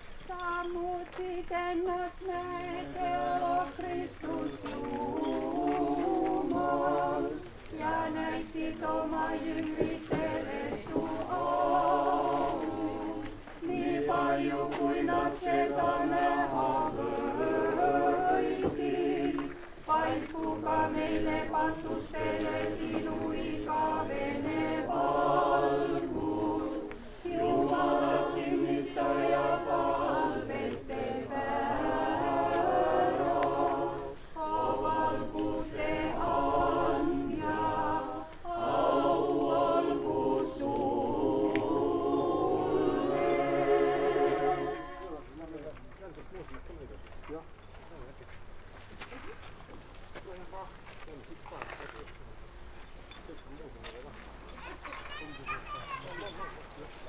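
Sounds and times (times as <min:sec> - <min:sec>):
a cappella choir chanting: 0:00.4 - 0:45.7.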